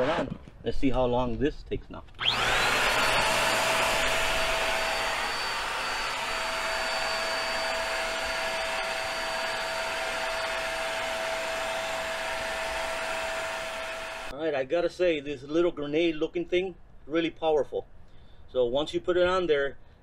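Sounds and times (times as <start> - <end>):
electric air pump whining: 2.2 - 14.3.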